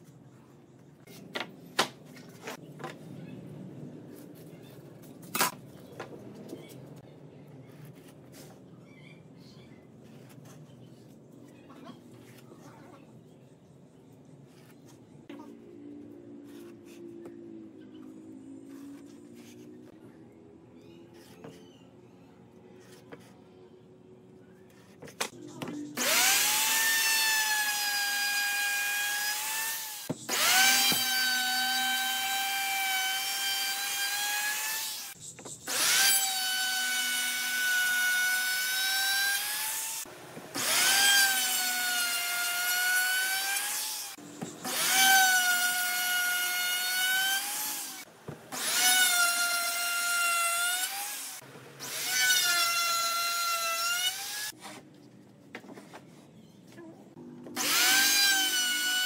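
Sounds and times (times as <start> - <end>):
router cutting wood with whine: 26.0 - 35.1, 35.7 - 54.5, 57.6 - 59.0.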